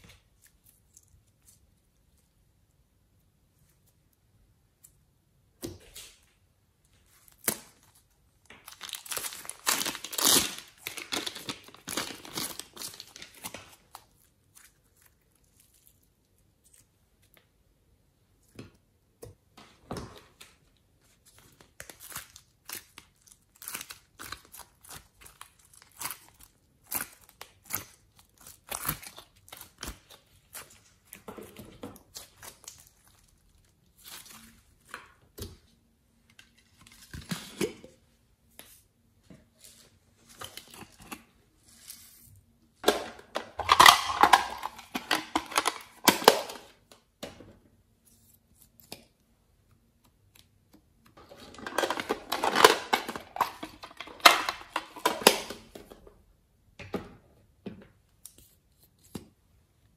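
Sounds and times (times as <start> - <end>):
sticky slime crackling: 21.2 - 31.3.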